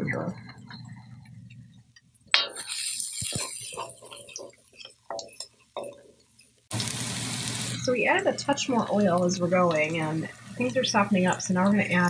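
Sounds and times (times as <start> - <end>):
food sizzling in a wok: 2.4 - 5.9, 6.7 - 12.0
wooden spatula scraping a pan: 2.6 - 6.2.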